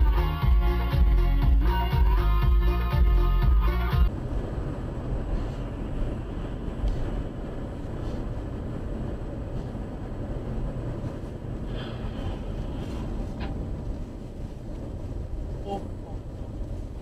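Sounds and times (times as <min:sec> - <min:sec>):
music: 0:00.0 - 0:04.1
car road and engine noise: 0:00.0 - 0:17.0.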